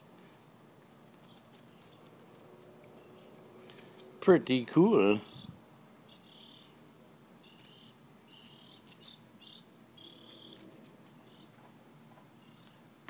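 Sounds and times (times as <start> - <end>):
insect chirping: 6.1 - 6.8, 7.4 - 10.6.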